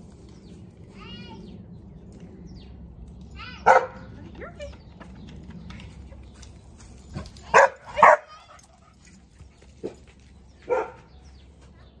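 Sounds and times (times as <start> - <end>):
dog barking: 3.6 - 4.1, 7.5 - 8.4, 10.7 - 11.1.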